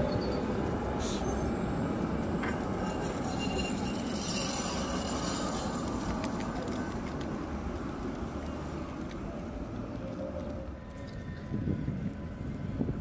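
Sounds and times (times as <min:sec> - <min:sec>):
high-pitched wheel squeal: 0:00.0 - 0:01.5, 0:02.4 - 0:06.0
tram rumbling over street rails: 0:00.0 - 0:13.0.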